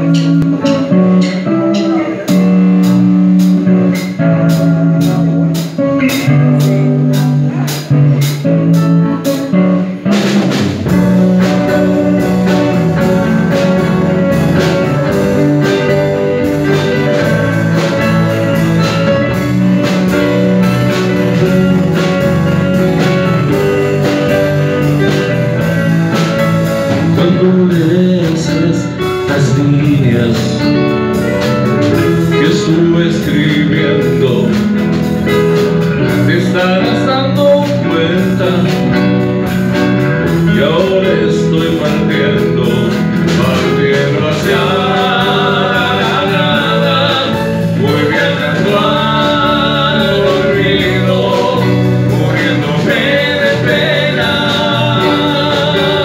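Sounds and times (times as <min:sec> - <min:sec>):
ticking beat: 0:00.0 - 0:05.2, 0:29.0 - 0:56.0
bass guitar: 0:00.0 - 0:56.0
folk-rock band playing: 0:00.0 - 0:56.0.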